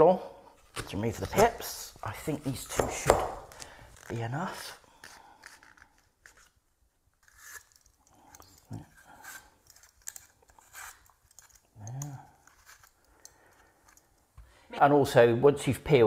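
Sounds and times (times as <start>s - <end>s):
peelings rustling on plastic board: 0.6s - 14.2s
peeler scraping apple skin: 0.8s - 6.6s, 7.2s - 13.1s.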